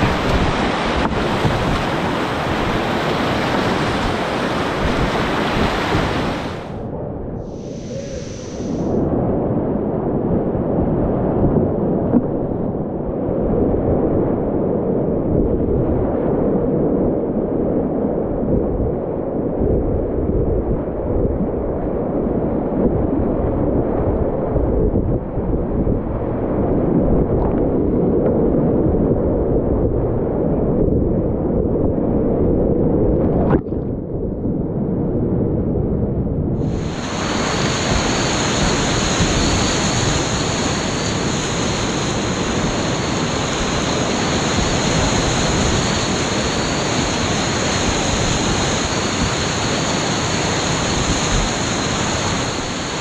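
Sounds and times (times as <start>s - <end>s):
whitewater rapids rushing: 0.0s - 6.7s, 36.8s - 48.0s.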